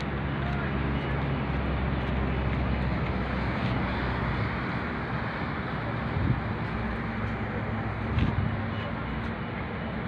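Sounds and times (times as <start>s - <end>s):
wind on microphone: 6.1s - 6.6s, 8.0s - 8.7s.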